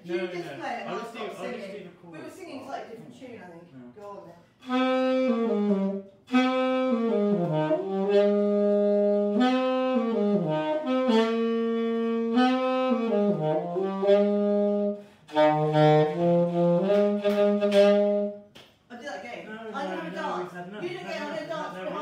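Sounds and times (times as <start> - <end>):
solo instrument melody: 4.6 - 18.4.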